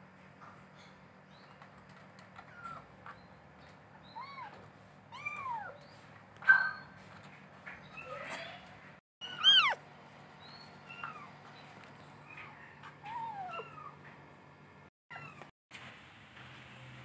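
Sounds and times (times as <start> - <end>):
kittens mewing: 9.2 - 9.8, 12.4 - 14.0.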